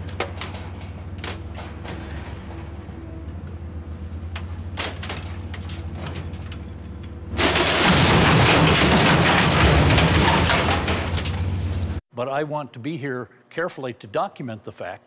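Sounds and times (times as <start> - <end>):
metal crashing and crunching: 0.0 - 3.2, 4.6 - 12.0
low engine hum: 1.8 - 4.8.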